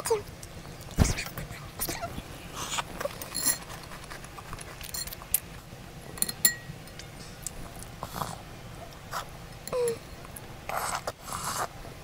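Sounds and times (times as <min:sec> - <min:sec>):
chewing: 0:02.6 - 0:05.5
slurping milk off a spoon: 0:10.7 - 0:11.7.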